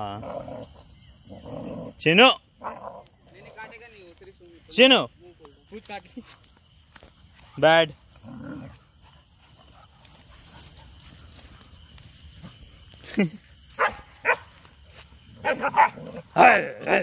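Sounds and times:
crickets buzzing: 0.0 - 17.0
dogs yelping and growling: 15.4 - 17.0.

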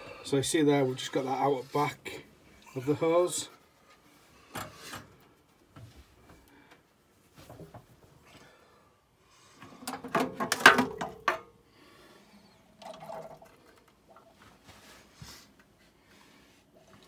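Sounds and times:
short knocks and rustles: 7.3 - 8.2.

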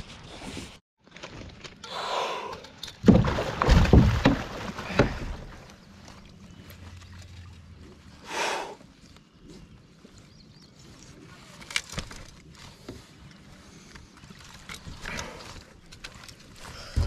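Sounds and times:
water splashing: 3.0 - 8.2.

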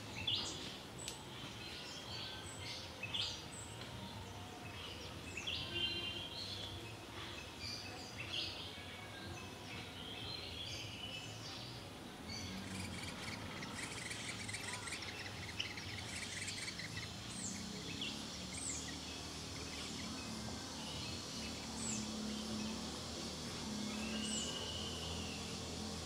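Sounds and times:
small birds chirping: 0.0 - 26.0
insects hissing: 10.0 - 26.0.

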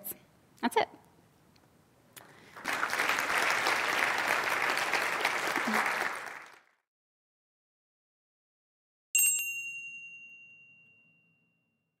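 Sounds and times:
bright bell-like chime: 9.2 - 12.0.

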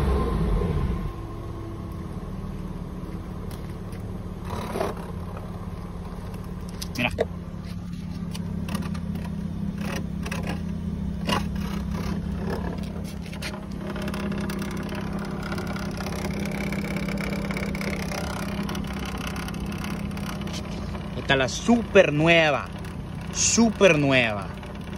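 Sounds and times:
car engine idling: 0.0 - 24.9
sharp clicks and scrapes: 4.4 - 5.5, 6.2 - 21.2.

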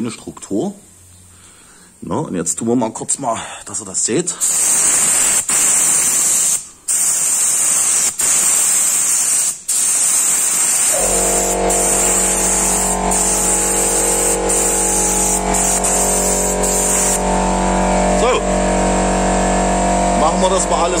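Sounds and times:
spray gun hissing: 4.4 - 18.0
air compressor motor humming: 10.8 - 21.0.

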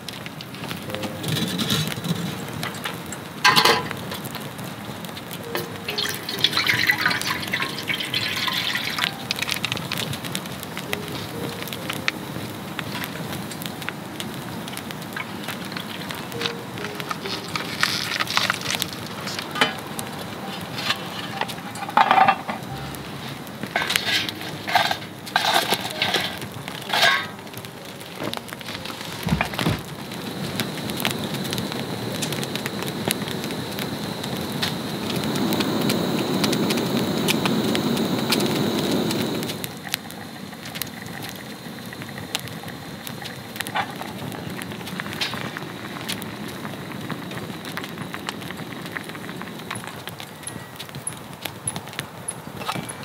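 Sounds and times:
wood fire crackling and popping: 0.0 - 53.0
soup bubbling at a boil: 1.9 - 50.3.

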